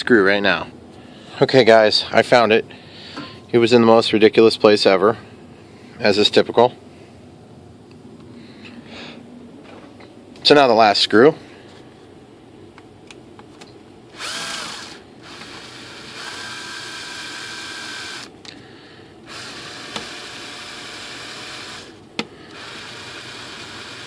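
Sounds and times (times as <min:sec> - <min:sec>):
cordless drill driving screw: 0:14.1 - 0:18.3, 0:19.3 - 0:24.0.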